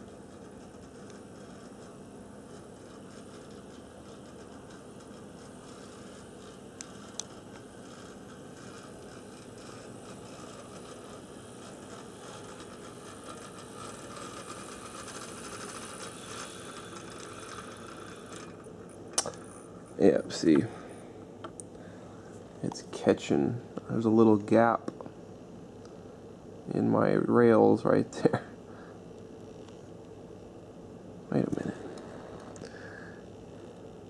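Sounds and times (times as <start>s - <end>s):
wheels rattling on rails: 0.0s - 18.6s
model locomotive motor whirring: 0.0s - 21.0s.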